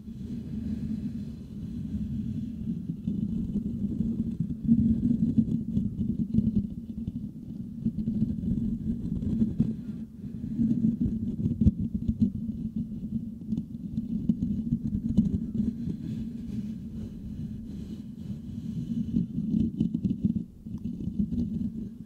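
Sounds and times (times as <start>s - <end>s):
fingertips scratching microphone grille: 1.8s - 22.0s.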